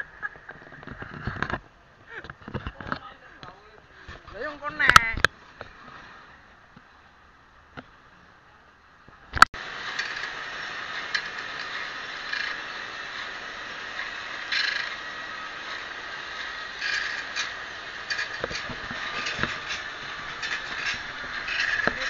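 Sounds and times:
grinding wheel grinding saw teeth: 9.6s - 22.0s.

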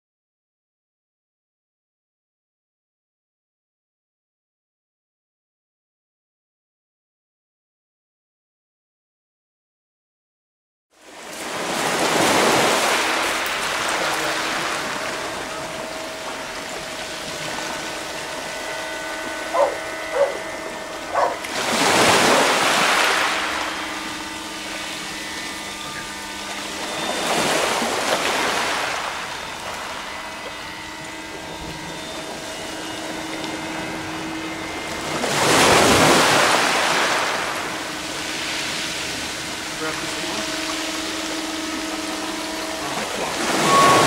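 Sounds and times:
faint steady tones: 11.0s - 44.0s
waves washing over pebbles: 11.1s - 20.6s, 21.3s - 31.2s, 34.8s - 44.0s
short pitched blips: 11.1s - 44.0s.

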